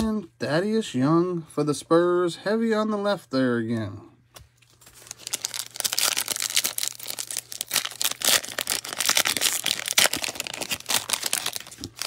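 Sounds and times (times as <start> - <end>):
plastic wrapper crinkling and tearing: 4.5 - 12.0.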